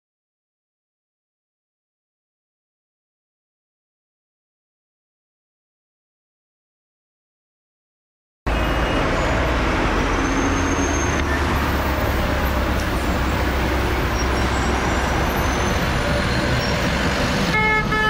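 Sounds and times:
cars and buses passing: 8.5 - 18.0.

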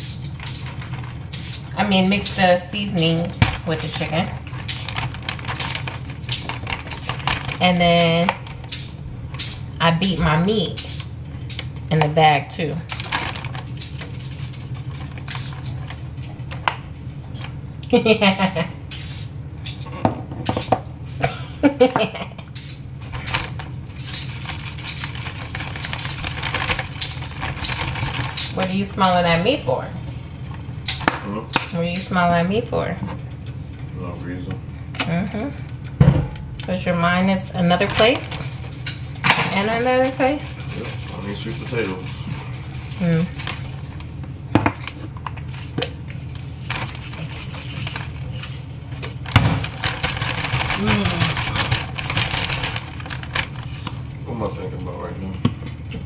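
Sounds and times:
plastic bag rustling: 0.0 - 9.7, 12.9 - 17.6, 23.0 - 30.8, 37.0 - 55.2
steady low hum: 0.0 - 56.0.

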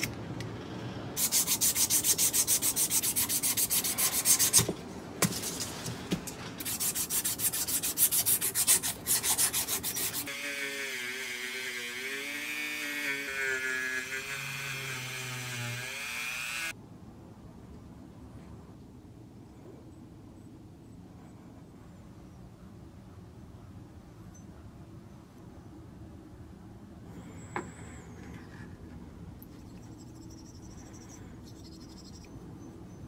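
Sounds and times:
sandpaper rubbing on metal: 1.2 - 4.7, 6.6 - 10.3.

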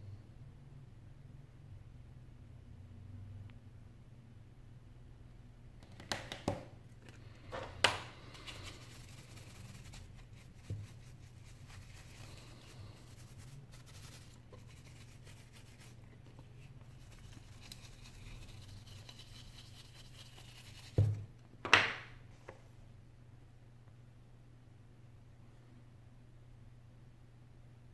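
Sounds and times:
low steady hum: 0.0 - 27.9
paintbrush sweeping over metal: 8.2 - 21.2.

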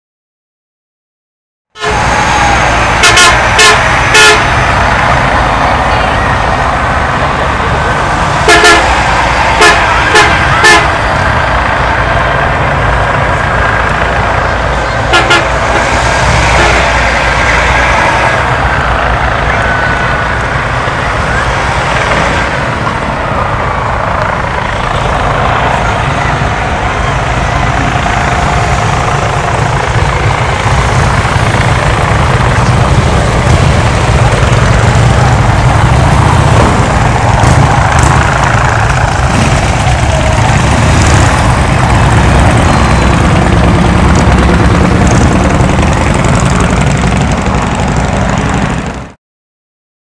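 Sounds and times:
bus horn toots: 1.8 - 5.0, 8.3 - 11.4, 14.8 - 17.1
bus engine rumble: 1.8 - 49.2.

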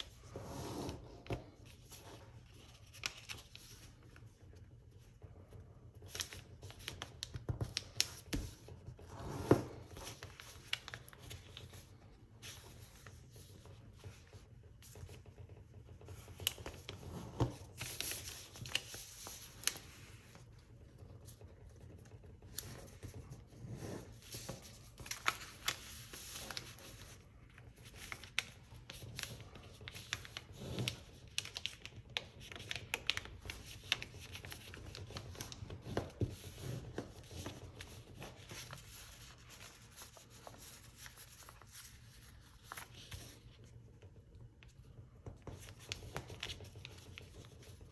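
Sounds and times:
paper rustling and crinkling: 0.0 - 47.9
fingers scraping along paper folds: 9.8 - 44.2.

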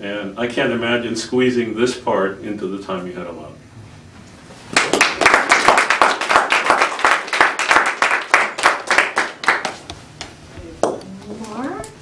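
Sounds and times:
people applauding: 4.7 - 9.8.

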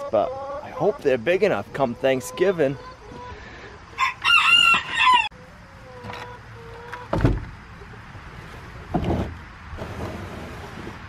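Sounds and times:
loud high poultry call: 1.8 - 7.1.

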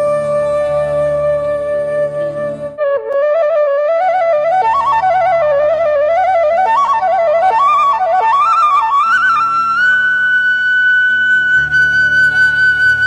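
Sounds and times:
low drone: 0.0 - 2.8
flute melody: 0.0 - 13.0.

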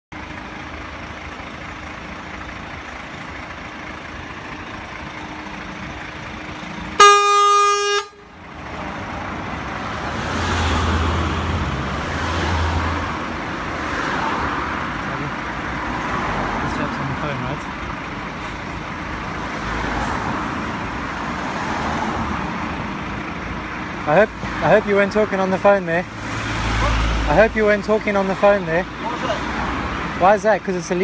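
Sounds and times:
lorry diesel engine: 0.1 - 31.0
traffic noise: 0.1 - 31.0
vehicle horn blast: 7.0 - 8.4.

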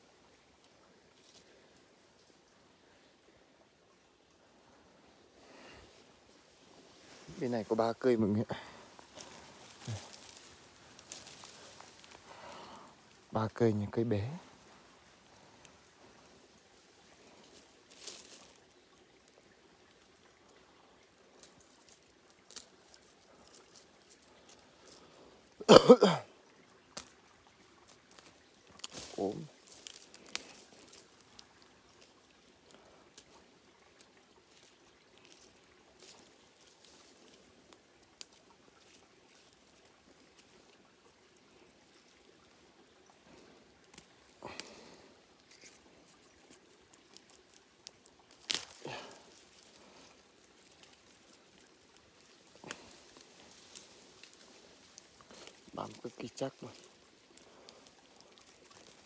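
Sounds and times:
faint rustles and clicks: 5.6 - 19.4, 26.9 - 40.9, 41.8 - 59.0.

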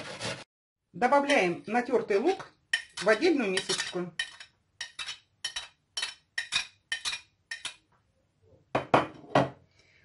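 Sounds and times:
spoon scraping porcelain plate: 0.0 - 0.5, 2.7 - 7.8.

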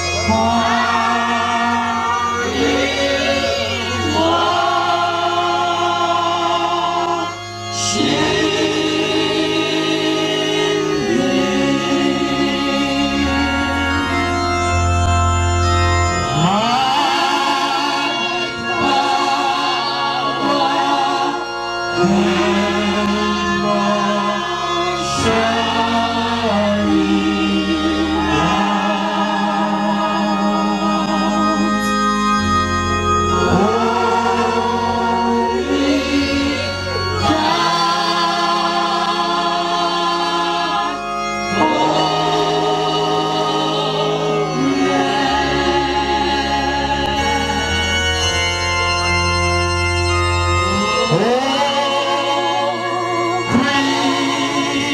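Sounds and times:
man singing into a microphone: 0.0 - 14.4, 16.3 - 32.0, 50.6 - 54.9
choir singing: 0.0 - 54.9
organ chords: 0.0 - 54.9.

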